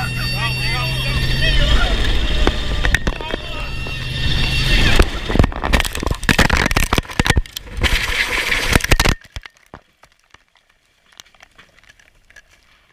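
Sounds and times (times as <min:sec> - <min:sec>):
helicopter crash smashing: 0:00.1 - 0:09.1.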